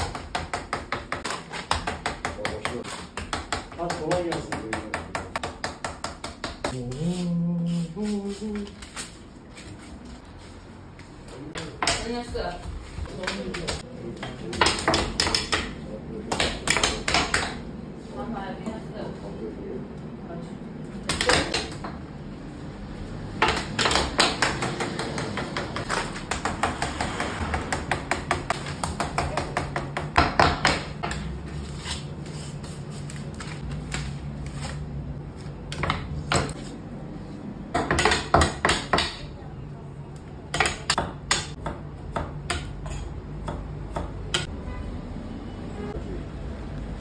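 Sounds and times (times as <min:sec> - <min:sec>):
knives chopping on cutting board: 0:40.6 - 0:44.5.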